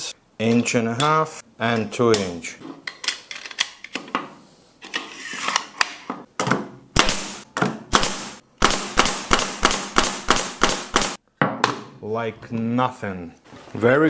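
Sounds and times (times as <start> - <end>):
brad nailer shots into wood: 7.0 - 11.2.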